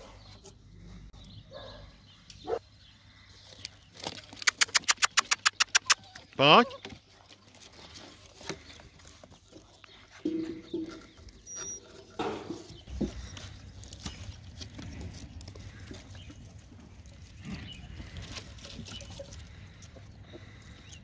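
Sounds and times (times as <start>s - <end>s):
claws scratching on wood: 3.6s - 6.2s.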